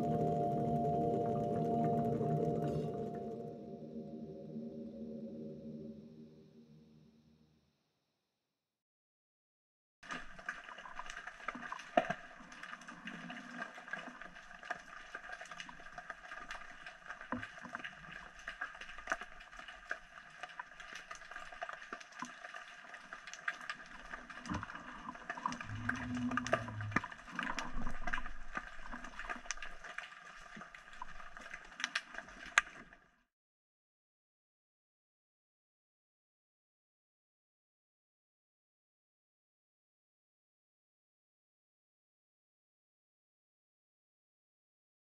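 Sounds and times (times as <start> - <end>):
underwater clicks and crackles: 0.0 - 3.6, 10.0 - 33.2
low rumble: 25.6 - 27.2.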